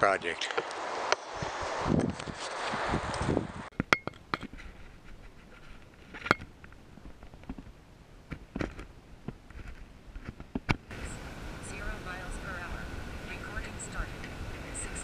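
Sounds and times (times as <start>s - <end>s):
faint rustling: 4.4s - 10.6s.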